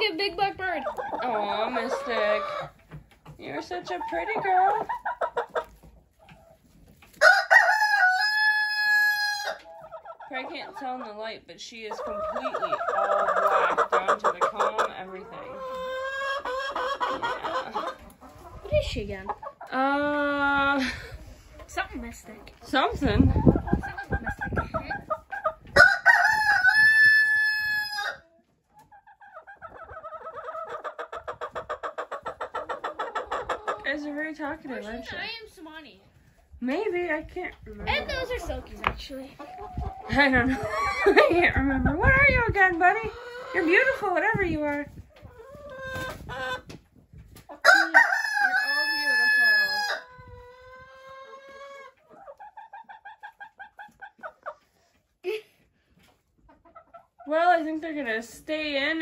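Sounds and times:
chicken clucking rapidly: 0.0 - 19.8, 21.1 - 35.4, 36.1 - 55.2, 55.9 - 57.7
rooster crowing: 7.2 - 9.2, 47.6 - 49.8.

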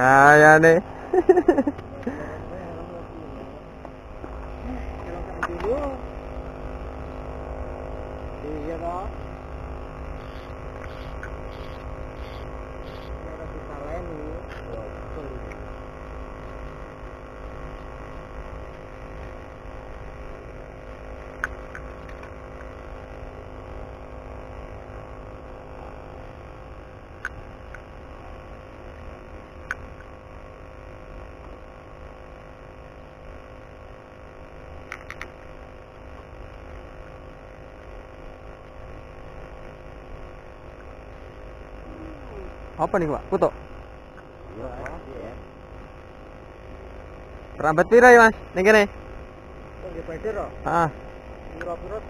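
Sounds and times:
faint steady tones: 0.0 - 52.0
steady low hum: 0.0 - 52.0.

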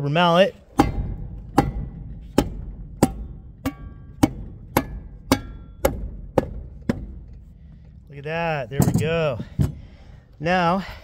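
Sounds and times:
rubber mallet hammering: 0.7 - 7.5.

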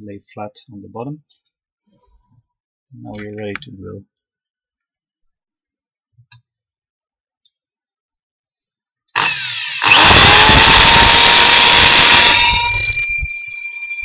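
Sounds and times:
drill bit drilling into wood: 9.1 - 14.0
drill press motor whining: 9.2 - 14.0.

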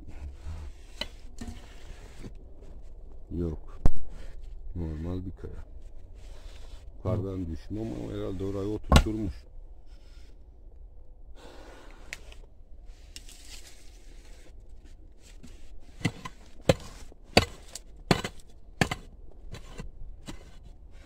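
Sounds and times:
digging tool knocking stony soil: 8.9 - 9.3, 15.4 - 20.7
hand digging in soil and stones: 11.9 - 21.0.

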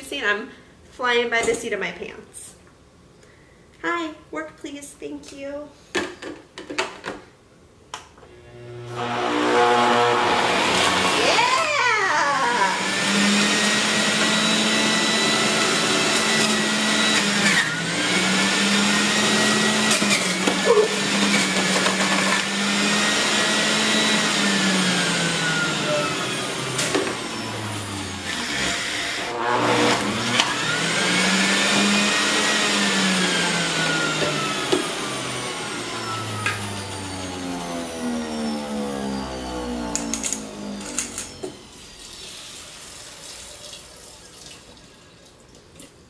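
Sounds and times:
juicer motor whining: 8.3 - 44.2.

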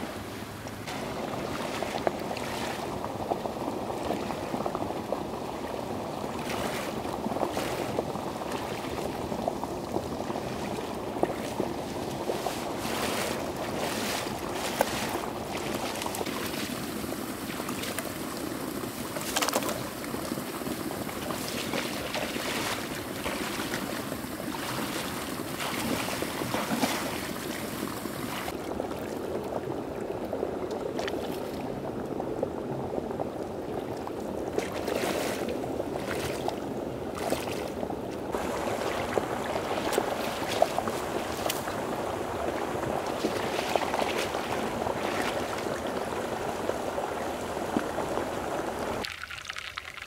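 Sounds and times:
water sloshing and splashing: 0.6 - 32.0, 33.7 - 50.0.

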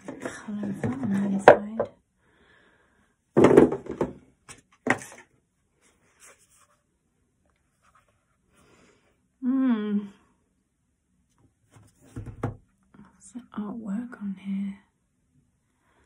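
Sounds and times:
cardboard thud on wooden table: 3.4 - 4.2, 12.1 - 12.6.

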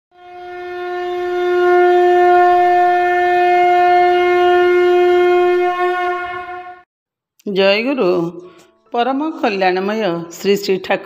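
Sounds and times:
conch shell blown: 0.1 - 6.9.

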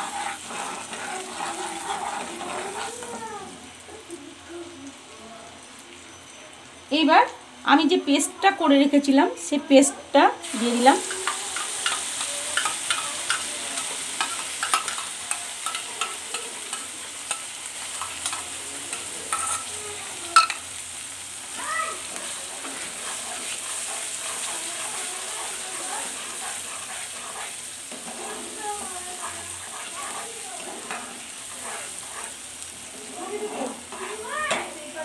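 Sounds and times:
spatula scraping pan: 0.0 - 3.6, 10.5 - 20.7, 21.4 - 35.0
paste sizzling in oil: 0.0 - 5.0, 10.4 - 35.0.

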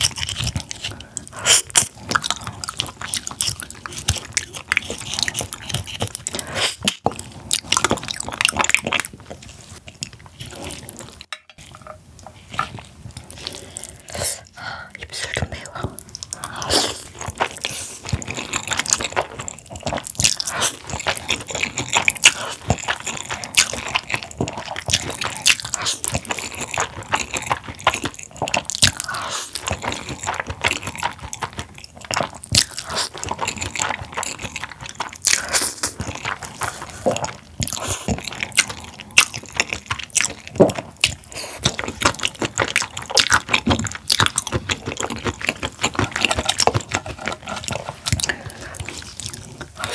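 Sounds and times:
chewing: 0.0 - 49.9
slurping noodles: 15.2 - 49.9.

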